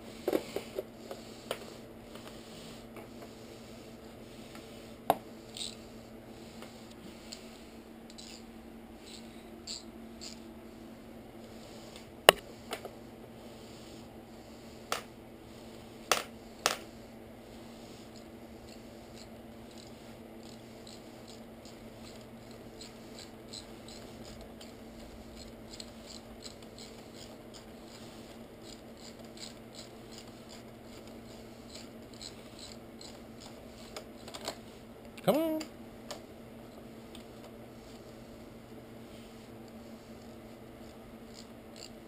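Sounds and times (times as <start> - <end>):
steady low hum: 0.0 - 42.0
faint scratching and light ticks: 17.8 - 34.8.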